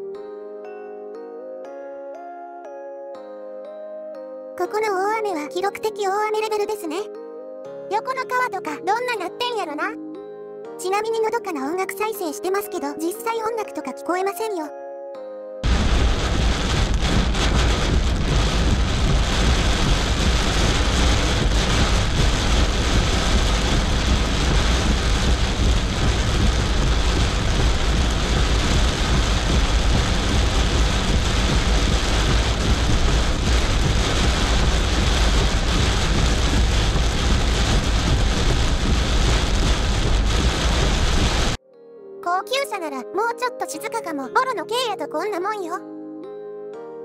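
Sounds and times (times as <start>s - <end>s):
heavy rain drumming on car roof: 15.6s - 41.6s
low car rumble: 15.6s - 41.6s.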